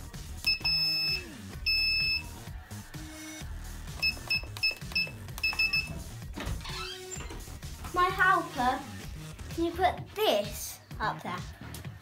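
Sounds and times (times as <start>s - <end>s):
keypad beeping: 0.4s - 2.3s, 4.0s - 6.0s.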